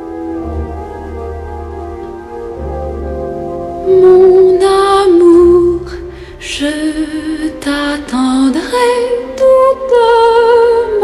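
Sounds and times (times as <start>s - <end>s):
woman singing slow song: 3.8s - 11.0s.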